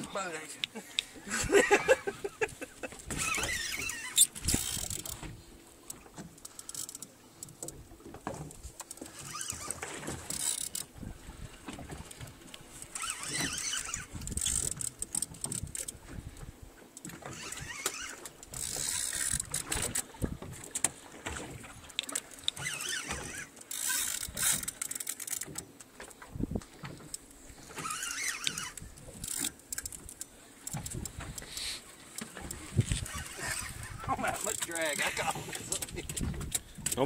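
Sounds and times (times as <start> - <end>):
wind and water rumble: 0.0 - 37.0
reel clicks: 0.1 - 37.0
fishing reel whirring: 1.9 - 5.2, 5.9 - 7.8, 8.9 - 11.0, 11.6 - 16.0, 17.0 - 20.1, 21.9 - 25.6, 26.8 - 36.6.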